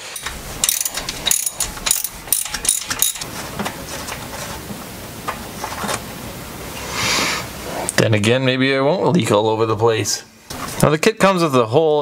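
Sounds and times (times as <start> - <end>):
socket ratchet clicking: 0.1 - 3.2.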